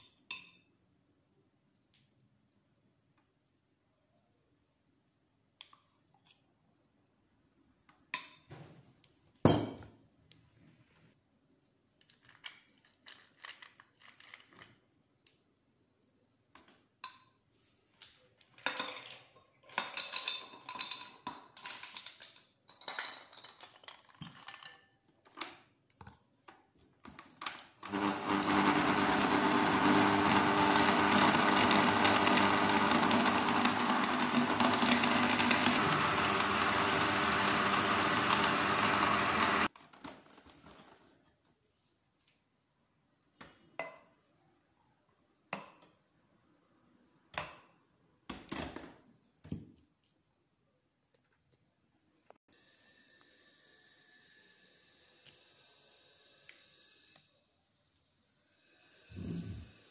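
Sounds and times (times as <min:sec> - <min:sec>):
blender crushing ice: 0:27.4 - 0:40.2.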